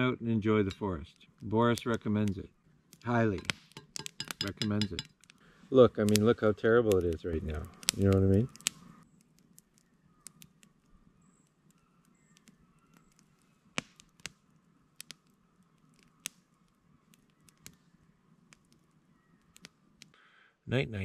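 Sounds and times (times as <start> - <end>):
campfire crackling and popping: 0.0 - 20.2.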